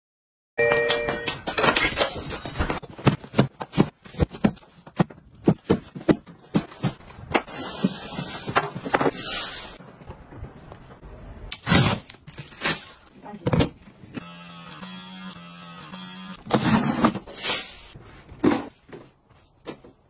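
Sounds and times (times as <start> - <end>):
cardboard boxes knocking: 2.8 - 7.0
plastic wrapping rustling: 5.6 - 10.0.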